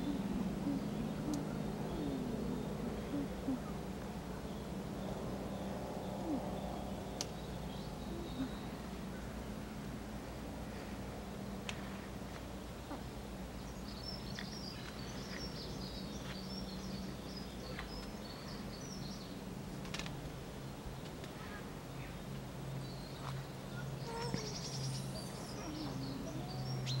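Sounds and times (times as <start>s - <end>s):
small songbirds chirping: 0.0s - 9.8s, 10.6s - 27.0s
steady low hum: 0.0s - 27.0s.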